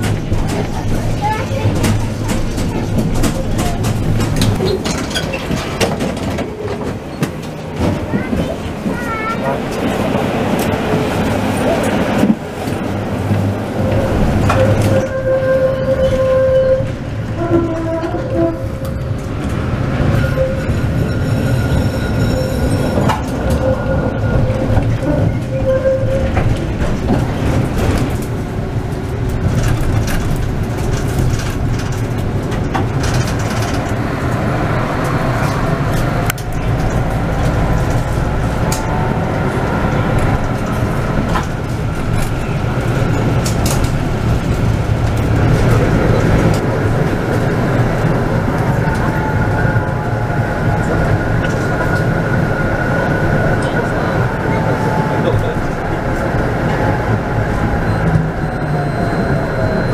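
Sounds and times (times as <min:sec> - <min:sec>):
wheels clicking over track: 0:00.0 - 0:15.8, 0:22.6 - 0:59.9
tram wheels rumbling on rails: 0:00.0 - 0:59.9.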